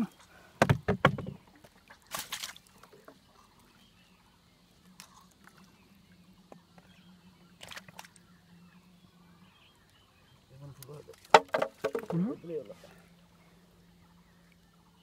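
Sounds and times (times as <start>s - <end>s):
water splash: 1.2s - 2.9s.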